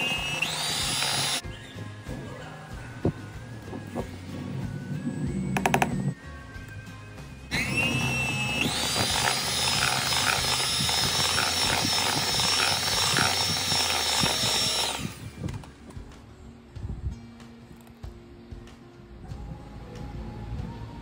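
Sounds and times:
electric hand mixer whining: 0.0s - 1.4s, 7.5s - 15.7s.

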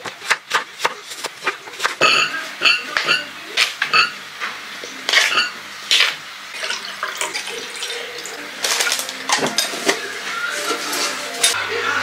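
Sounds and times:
dishes and cutlery clinking: 1.4s - 4.2s, 5.1s - 8.0s, 8.6s - 11.6s
water running from tap: 6.5s - 9.1s.

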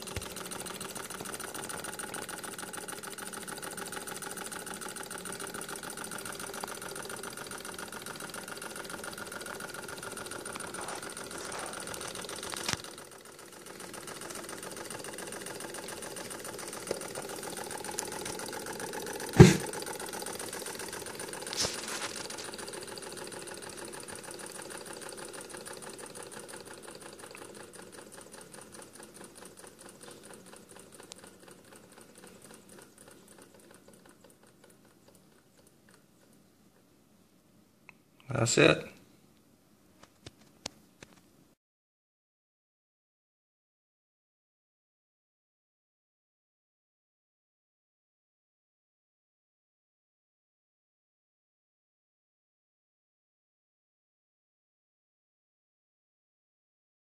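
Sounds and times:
small engine clattering: 0.0s - 36.9s.

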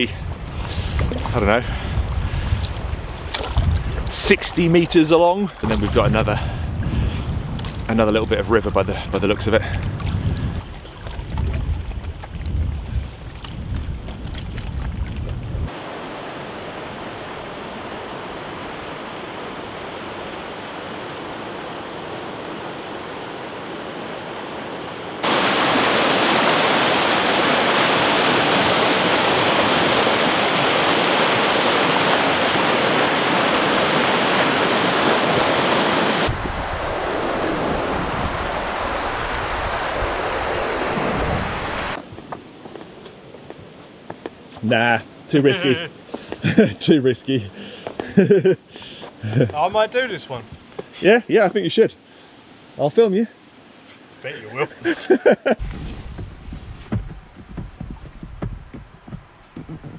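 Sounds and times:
wind rumble on microphone: 0.0s - 5.0s, 5.6s - 16.1s, 28.2s - 42.3s, 55.6s - 59.9s
river rapids rushing: 15.7s - 42.0s.

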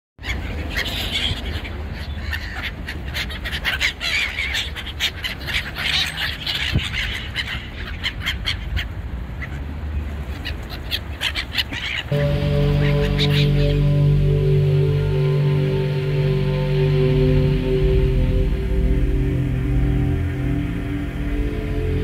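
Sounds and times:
gulls calling: 10.4s - 22.0s
steady low rumble: 12.1s - 22.0s.

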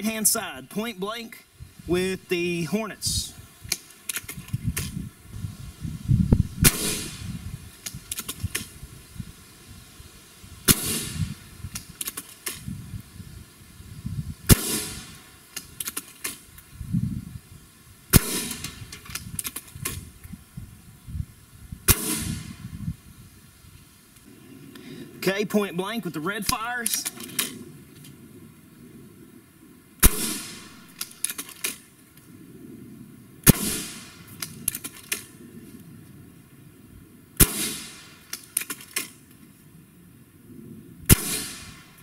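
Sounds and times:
air rifle shots: 6.6s - 8.8s, 10.6s - 11.4s, 14.5s - 16.5s, 18.1s - 20.0s, 21.9s - 22.6s, 30.0s - 31.8s, 33.4s - 35.3s, 37.4s - 39.2s, 41.1s - 42.0s.

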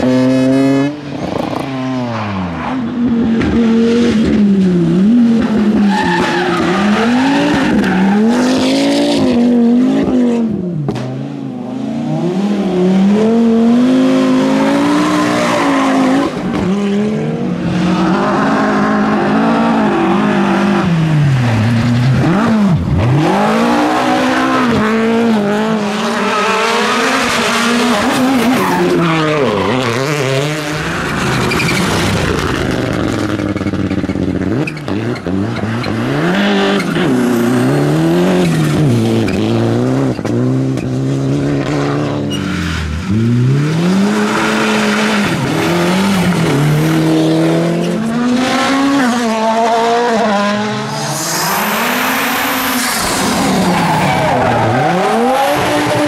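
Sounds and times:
rally car engines revving: 0.0s - 56.0s
cars sweeping past: 41.4s - 56.0s.

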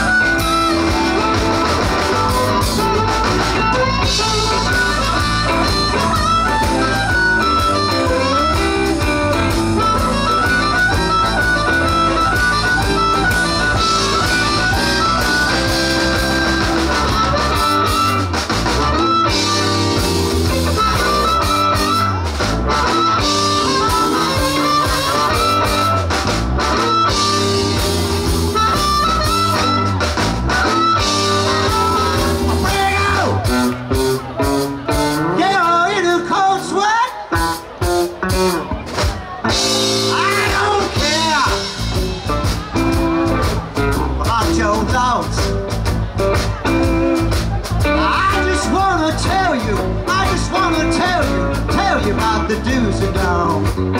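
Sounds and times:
harmonica: 0.0s - 33.5s
blues band playing: 0.0s - 53.9s.

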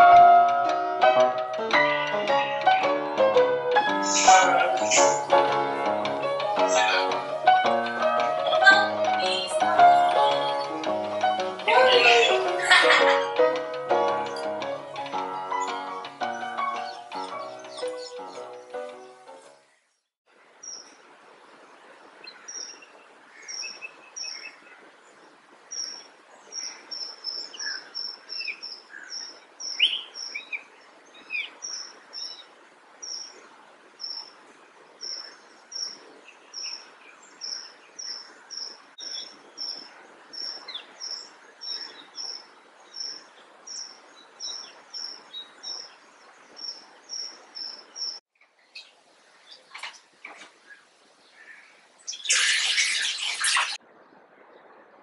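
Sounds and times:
steady background hiss: 0.0s - 55.0s
bird chirping: 3.9s - 5.4s, 15.4s - 19.9s, 25.7s - 33.4s, 35.0s - 53.8s
other bird calls: 4.0s - 5.4s.

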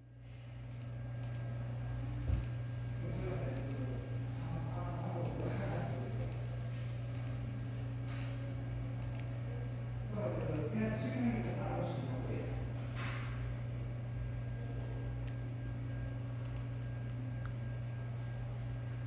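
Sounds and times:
steady low hum: 0.0s - 19.0s
computer mouse clicking: 0.7s - 1.5s, 2.3s - 2.6s, 3.6s - 3.8s, 5.2s - 5.5s, 6.2s - 6.5s, 7.1s - 7.4s, 8.1s - 8.4s, 9.0s - 9.3s, 10.4s - 10.6s, 16.4s - 16.7s.

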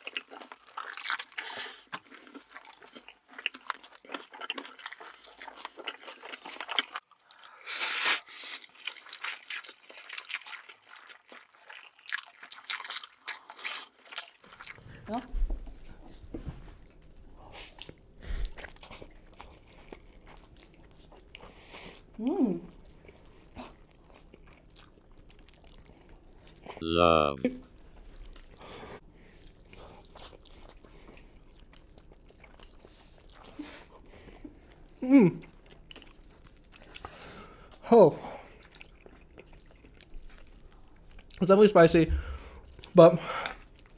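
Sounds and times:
crunchy chewing: 0.0s - 7.4s, 8.6s - 14.8s, 16.8s - 26.8s, 38.4s - 41.4s
wet sticky chewing: 0.0s - 7.6s, 8.4s - 14.9s, 16.8s - 26.8s, 27.6s - 41.6s, 42.3s - 43.9s
slurping noodles: 7.6s - 8.8s.

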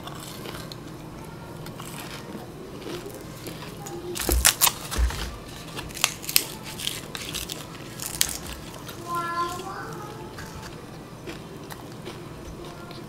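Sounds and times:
green onion stalks snapping and tearing: 1.7s - 9.7s.

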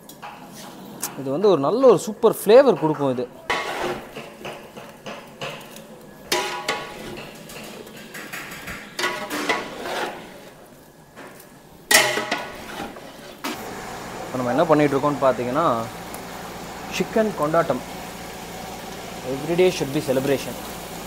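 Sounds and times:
metal ladle scraping a pot: 3.5s - 4.4s, 6.3s - 10.6s, 11.9s - 13.6s.

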